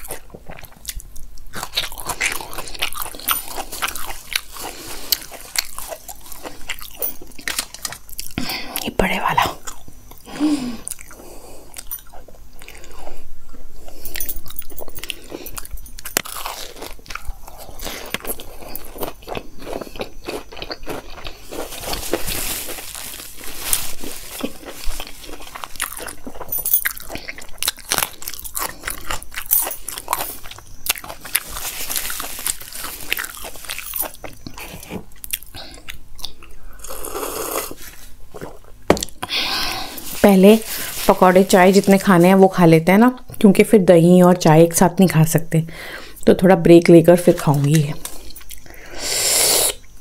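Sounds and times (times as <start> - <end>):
crunching and chewing: 0.0 - 42.5, 47.4 - 49.0.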